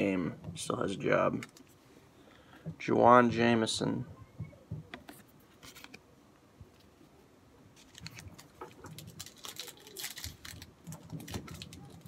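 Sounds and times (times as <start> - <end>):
trading cards shuffling: 4.8 - 6.1.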